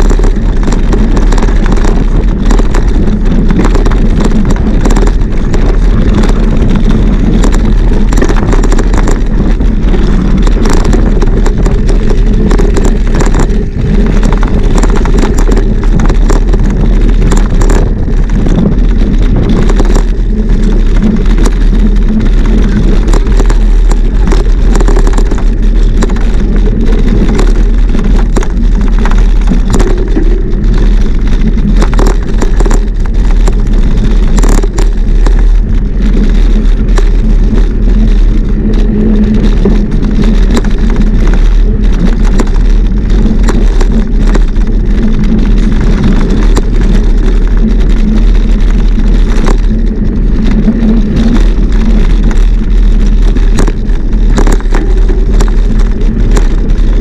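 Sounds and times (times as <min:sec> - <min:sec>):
bike tyres and frame rattling: 0:00.0 - 0:57.0
wind rumble on microphone: 0:00.0 - 0:57.0.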